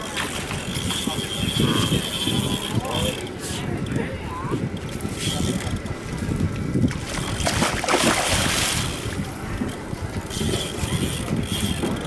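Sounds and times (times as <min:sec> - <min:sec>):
wind buffeting microphone: 0:00.0 - 0:12.0
fish splashing at surface: 0:07.0 - 0:09.1.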